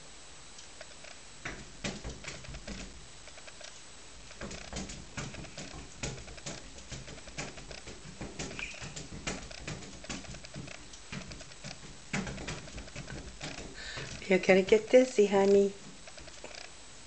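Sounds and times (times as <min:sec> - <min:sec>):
cat claws tapping on glass: 0:01.4 - 0:02.9, 0:04.3 - 0:14.9.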